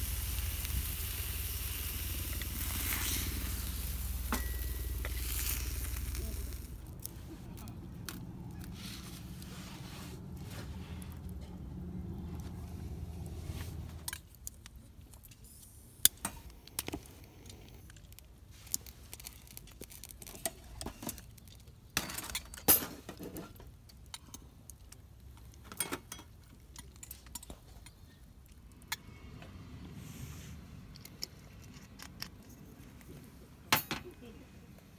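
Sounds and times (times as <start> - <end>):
low steady rumble: 0.0 - 18.0
metal utensils clinking: 2.2 - 6.6.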